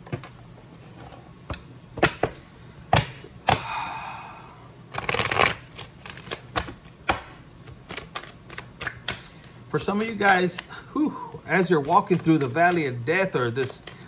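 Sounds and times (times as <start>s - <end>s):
deck of cards shuffling: 4.9s - 6.8s, 7.6s - 10.8s, 11.5s - 14.0s
cards snapping and tapping: 4.9s - 10.8s, 11.6s - 14.0s.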